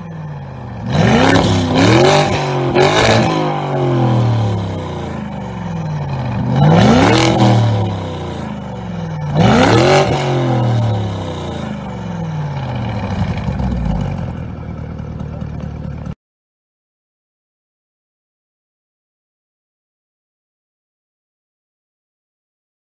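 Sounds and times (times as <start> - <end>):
car engine revving: 0.0 - 16.1.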